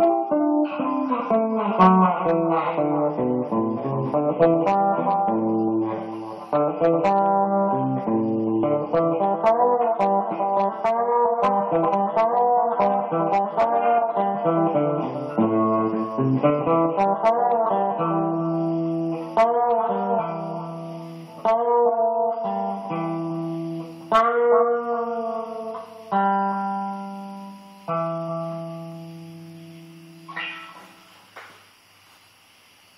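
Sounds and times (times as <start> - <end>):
guitar playing: 0.0 - 31.1.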